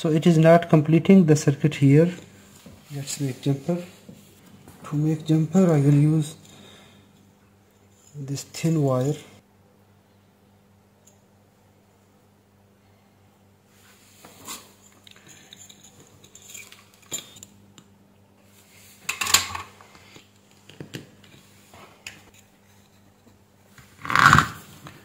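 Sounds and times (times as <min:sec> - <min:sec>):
light clicks and scrapes handling parts: 0:14.1 - 0:17.5.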